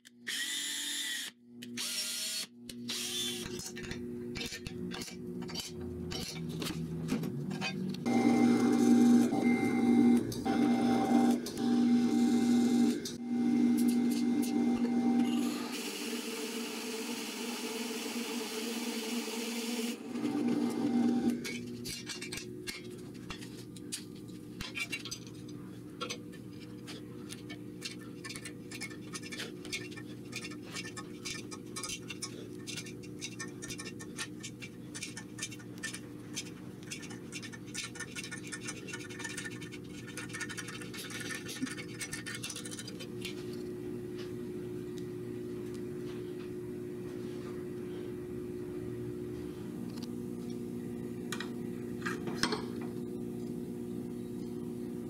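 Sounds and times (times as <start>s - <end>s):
steady hum: 20.9s - 55.0s.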